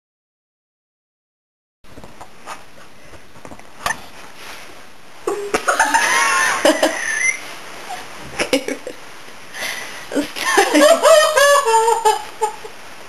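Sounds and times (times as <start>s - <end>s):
woman giggling: 5.3s - 9.0s, 10.1s - 12.7s.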